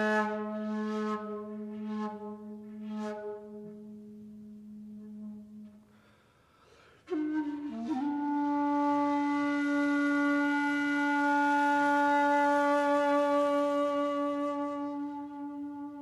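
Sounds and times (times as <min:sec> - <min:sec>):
long held wind instrument note: 0:00.0 - 0:16.0.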